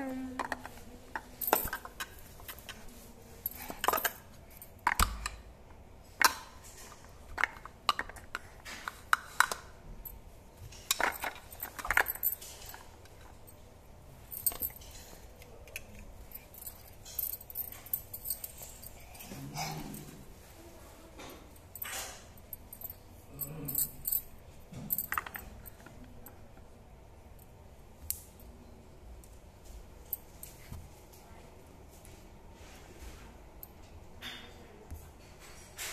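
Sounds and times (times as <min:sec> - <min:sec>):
plastic cups clacking: 0:07.3 - 0:09.7.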